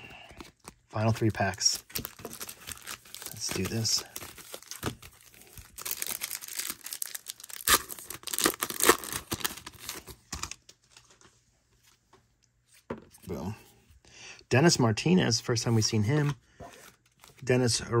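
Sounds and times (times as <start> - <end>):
wrapper tearing and crinkling: 0.6 - 11.0.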